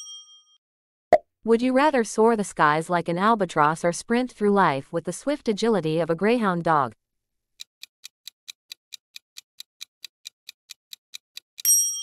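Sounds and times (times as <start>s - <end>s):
clock ticking quickly: 7.6s - 11.6s.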